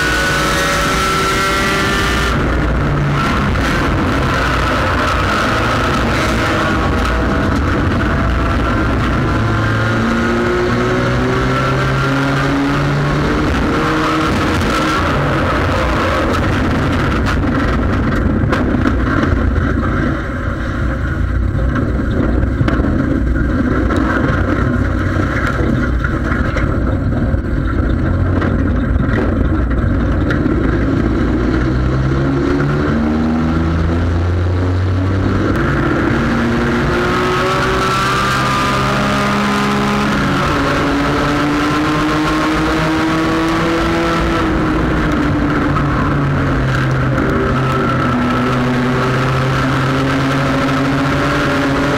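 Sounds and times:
race car engine revving: 0.0s - 51.9s
car body rattling and knocking: 16.3s - 31.2s.

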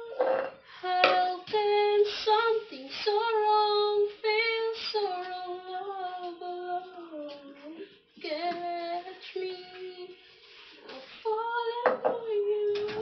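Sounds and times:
woman singing unaccompanied: 0.0s - 13.0s.

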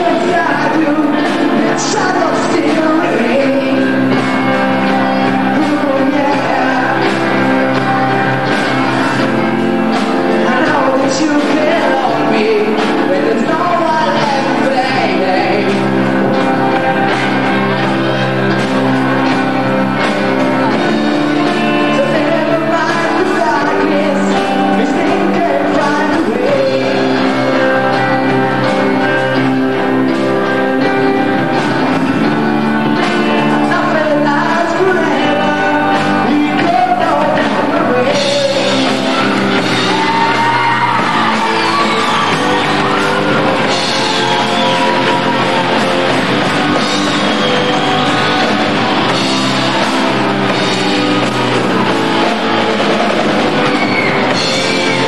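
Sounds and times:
lead vocal singing: 0.0s - 32.0s, 32.8s - 55.0s
bass: 0.0s - 55.0s
electric guitar: 0.0s - 55.0s
keyboard chords: 0.0s - 55.0s.

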